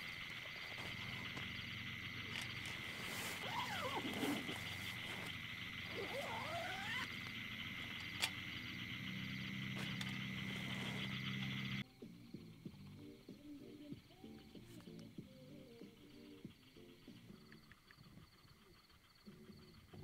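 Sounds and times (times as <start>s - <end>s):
frogs trilling: 0.0s - 20.0s
sweeping frog calls: 0.0s - 20.0s.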